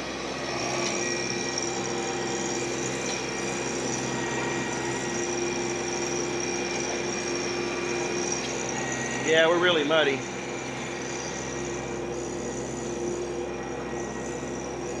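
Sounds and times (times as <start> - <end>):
high machine whine: 0.0 - 15.0
tractor engine drone: 0.0 - 15.0.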